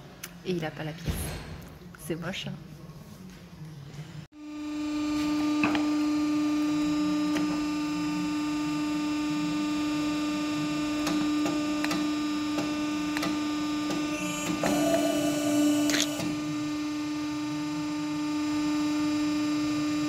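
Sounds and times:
machine power unit humming: 4.4 - 20.0.

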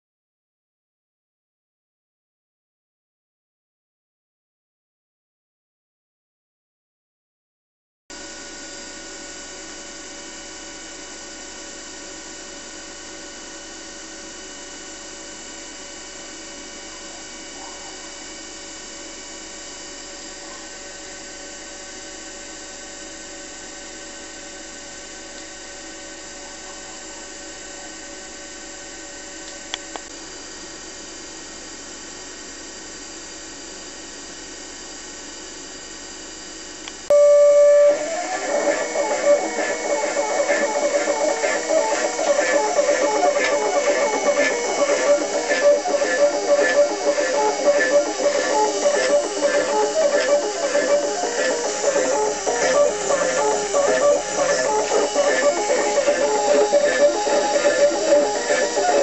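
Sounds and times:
steady machine whine: 8.1 - 59.0
loud steady tone: 37.1 - 59.0.

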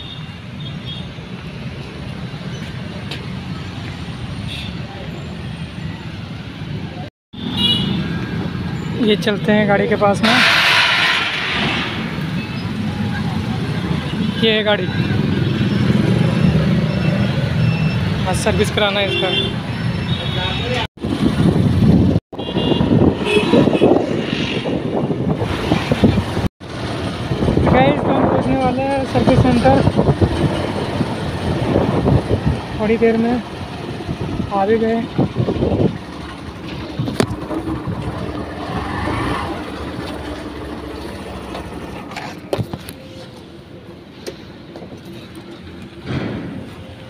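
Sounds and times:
road noise: 0.0 - 47.0
wind buffeting microphone: 21.0 - 39.1
motorcycle engine: 35.2 - 42.5.

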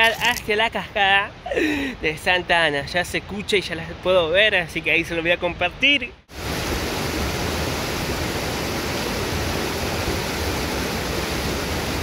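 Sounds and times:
waterfall rushing: 6.3 - 12.0.

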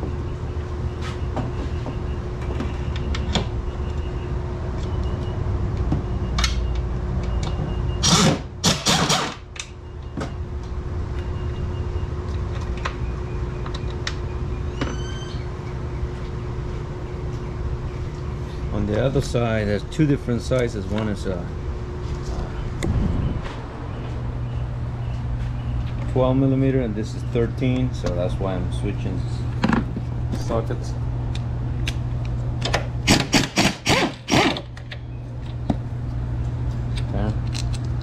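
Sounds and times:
low workshop hum: 0.0 - 38.0
short squeak: 14.7 - 15.5.

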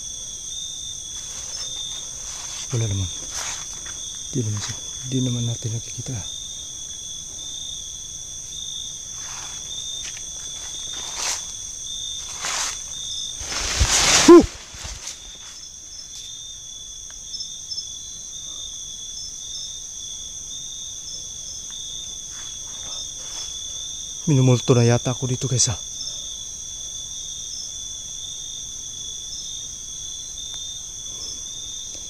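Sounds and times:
night insects chorus: 0.0 - 32.0
brush rustling underfoot: 1.0 - 5.0, 9.1 - 16.4.

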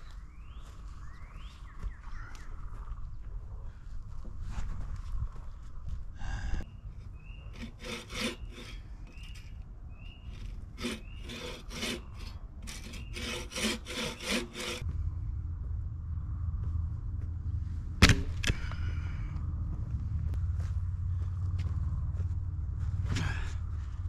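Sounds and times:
hand saw cutting wood: 7.3 - 14.8.

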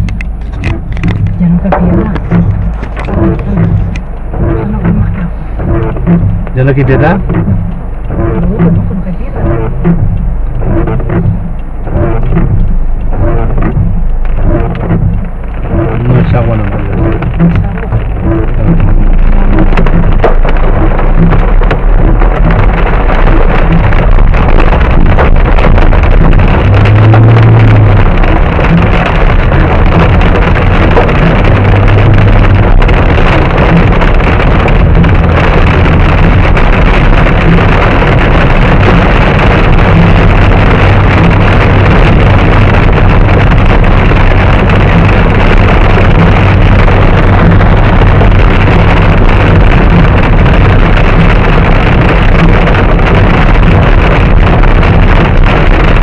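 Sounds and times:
engine and tyres on wet road: 0.0 - 56.0
heavy rain beating on car: 0.0 - 56.0.

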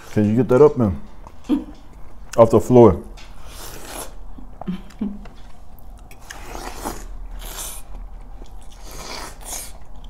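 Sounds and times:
biting and chewing watermelon: 5.7 - 10.0.

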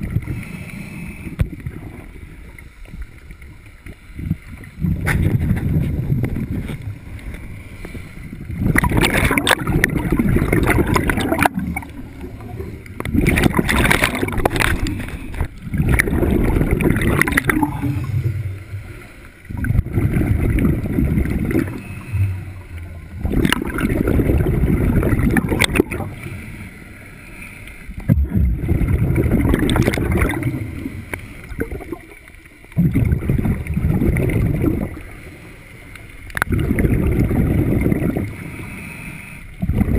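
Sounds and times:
scuba regulator bubbling exhalations: 8.3 - 26.4, 28.0 - 35.2, 36.4 - 38.5, 39.6 - 39.9.

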